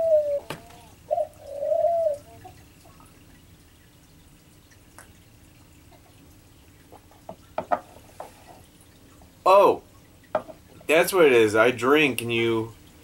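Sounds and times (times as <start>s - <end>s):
bird cooing: 0.0s - 2.6s.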